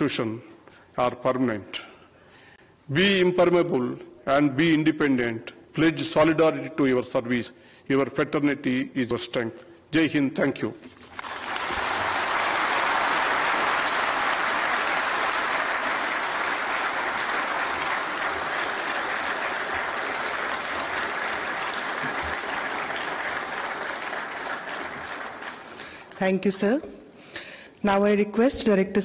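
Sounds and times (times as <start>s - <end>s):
audience applauding: 11.1s - 26.2s.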